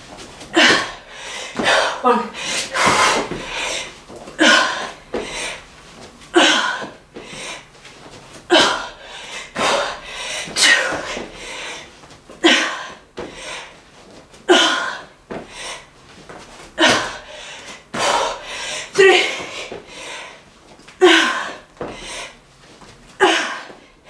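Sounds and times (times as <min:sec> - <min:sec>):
woman breathing hard: 0:00.5 - 0:05.7, 0:06.3 - 0:07.7, 0:08.5 - 0:13.9, 0:14.5 - 0:16.0, 0:16.7 - 0:22.4.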